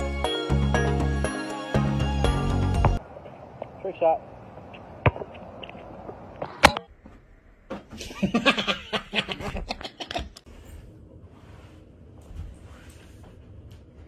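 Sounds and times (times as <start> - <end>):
person laughing hard: 8.0 - 10.4.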